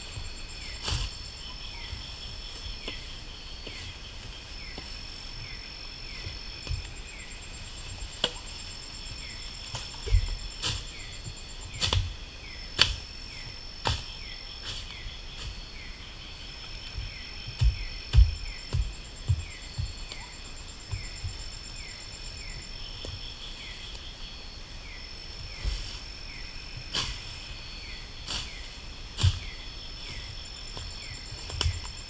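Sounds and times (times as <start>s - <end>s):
night insects trilling: 0.0s - 32.0s
sharp knocks on ground: 17.5s - 20.2s.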